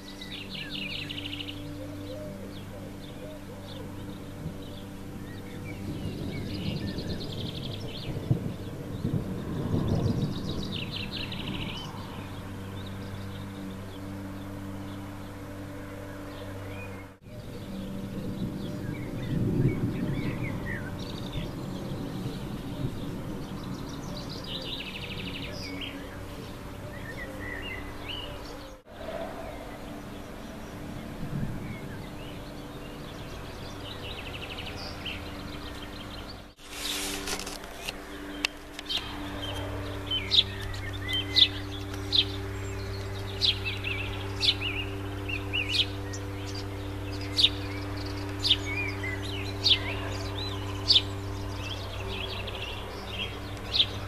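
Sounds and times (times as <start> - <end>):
birds singing and chirping: 0.0 - 54.0
steady low hum: 0.0 - 54.0
distant thunder rumble: 4.4 - 13.0, 17.4 - 25.2, 29.0 - 34.1.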